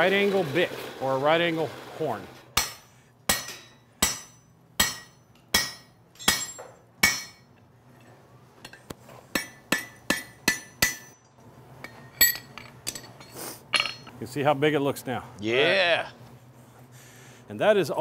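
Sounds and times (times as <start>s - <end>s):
hammer striking metal on anvil: 2.6s - 7.5s, 8.6s - 11.2s.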